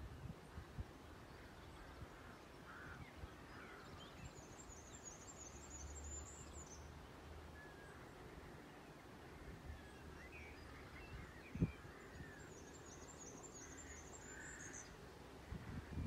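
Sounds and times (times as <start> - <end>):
distant birds singing: 0.0 - 16.0.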